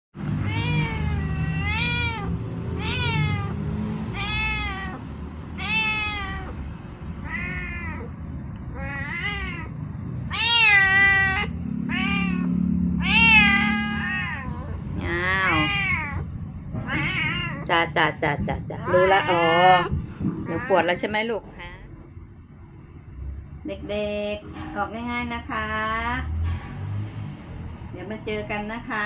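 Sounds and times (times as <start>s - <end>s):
cat meowing: 0.3s - 17.7s, 18.8s - 21.0s.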